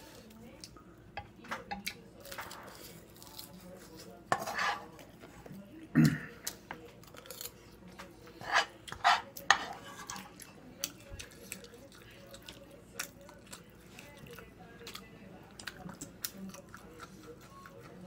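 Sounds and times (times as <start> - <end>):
chewing: 1.7 - 4.2, 4.8 - 18.0
metal spoon scraping a frying pan: 4.3 - 4.9, 8.4 - 10.4.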